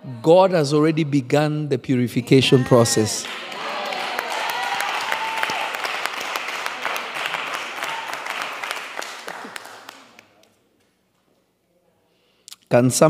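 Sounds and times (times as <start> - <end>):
audience applauding: 2.7 - 10.5.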